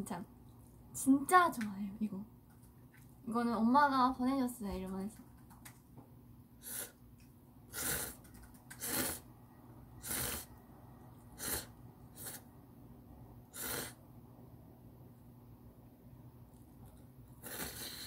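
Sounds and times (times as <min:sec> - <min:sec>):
person slurping noodles: 0:07.7 - 0:09.3, 0:10.0 - 0:10.6, 0:11.4 - 0:12.5, 0:13.5 - 0:14.0, 0:17.4 - 0:18.0.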